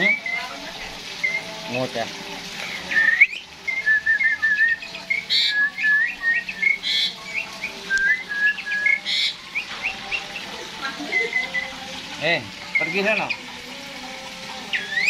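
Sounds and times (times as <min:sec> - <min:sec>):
starling whistled song: 0:00.0 - 0:01.8, 0:02.6 - 0:11.9, 0:12.6 - 0:13.6, 0:14.6 - 0:15.0
man whistling: 0:02.9 - 0:06.8, 0:07.9 - 0:09.1.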